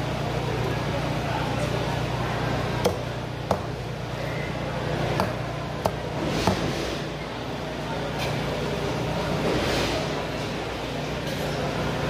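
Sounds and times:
steady low hum: 0.0s - 12.0s
cleaver chopping on wooden block: 2.8s - 3.8s.

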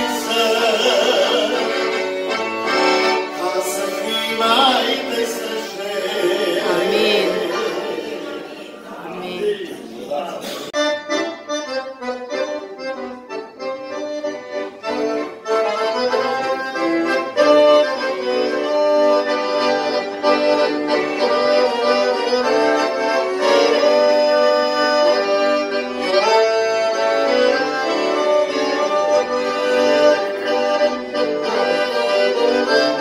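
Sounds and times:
piano accordion playing a hymn tune: 0.0s - 33.0s.

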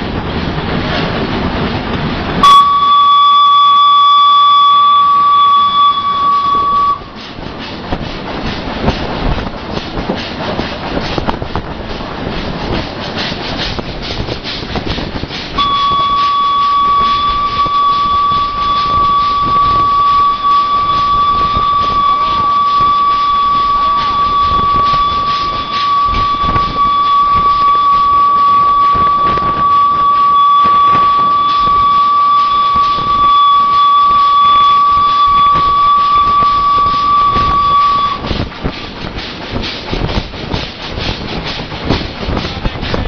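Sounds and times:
rattling locomotive running: 0.0s - 43.0s
steam whistle blast: 2.4s - 7.2s, 15.6s - 38.4s.

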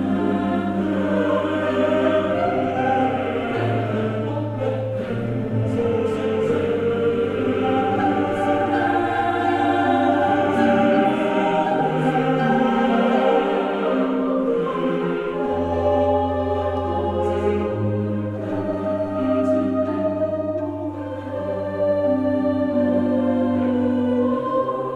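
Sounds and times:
slow choir-like ambient music: 0.0s - 24.9s.

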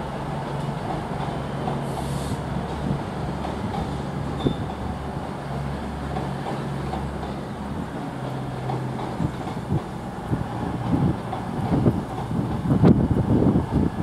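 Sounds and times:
locomotive engine low drone: 0.0s - 14.0s.

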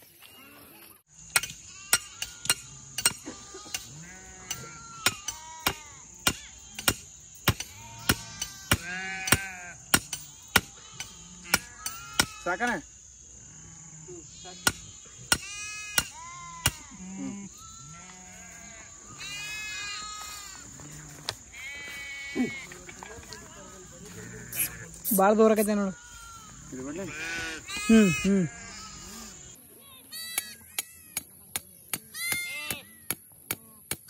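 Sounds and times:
sheep bleating: 3.2s - 6.1s, 7.7s - 12.5s, 15.4s - 22.8s, 23.6s - 25.0s, 25.9s - 30.6s.

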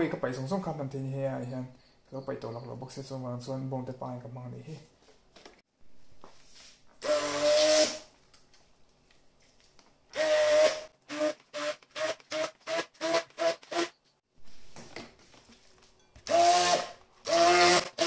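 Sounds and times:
stick blender whirring: 10.2s - 13.9s, 16.2s - 18.0s.

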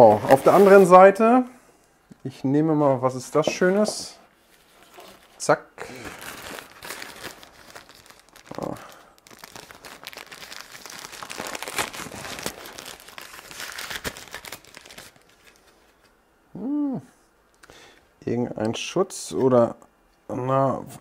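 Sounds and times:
plastic bag crinkling: 4.6s - 16.0s
person saying hm: 16.5s - 17.2s.

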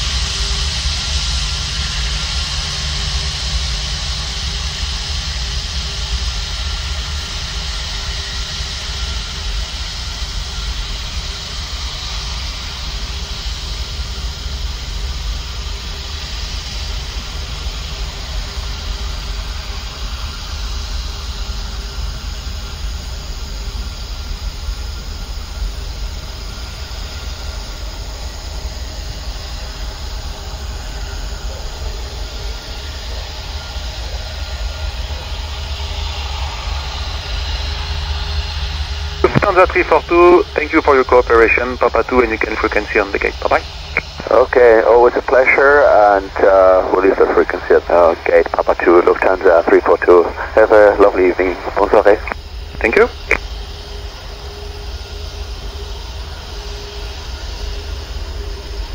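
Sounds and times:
faint engine whine: 0.0s - 58.9s
jet engines rumbling: 0.0s - 58.9s.

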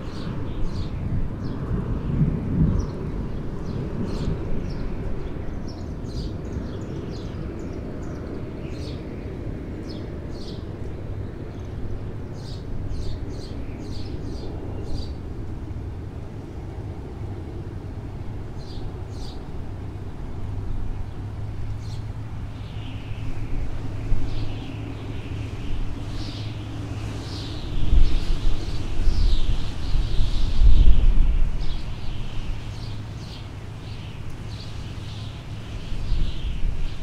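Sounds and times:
small birds chirping: 0.0s - 37.0s.

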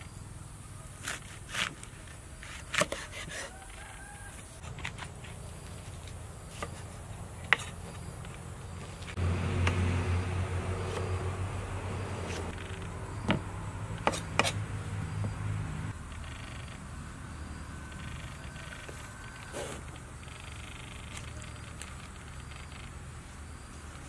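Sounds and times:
cleaver chopping on wooden board: 2.6s - 3.5s, 13.2s - 14.6s
steady noise with low hum: 10.2s - 24.0s.

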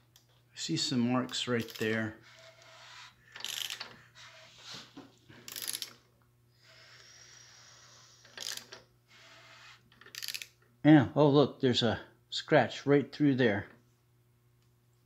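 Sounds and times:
ratchet wrench clicking: 1.4s - 2.6s, 3.3s - 3.9s, 5.5s - 6.0s, 8.2s - 8.8s, 10.0s - 10.6s.

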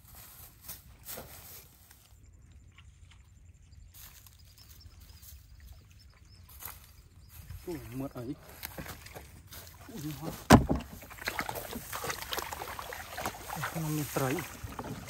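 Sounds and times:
footsteps crunching on dry straw: 0.0s - 2.2s, 4.0s - 5.7s, 6.5s - 15.0s.

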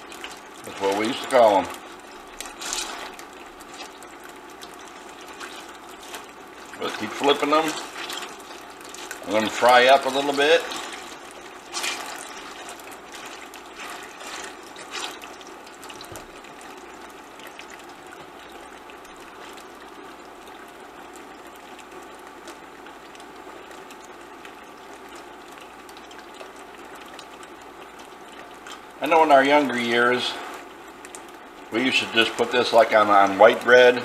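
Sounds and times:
meat sizzling in hot oil: 0.0s - 21.4s.

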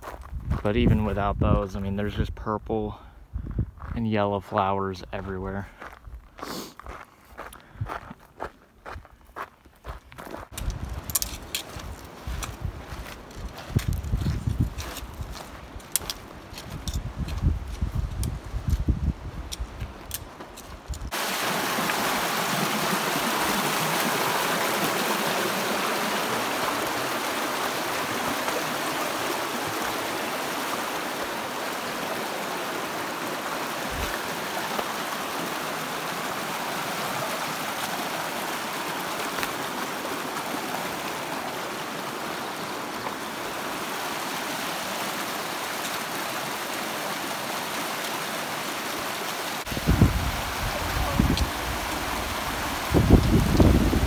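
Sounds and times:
creek rushing over rocks: 21.1s - 54.0s.

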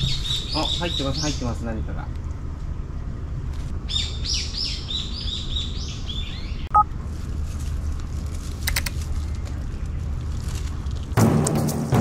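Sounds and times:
songbird chirping: 0.0s - 1.6s, 3.8s - 6.8s
steady low rumble: 0.0s - 12.0s.

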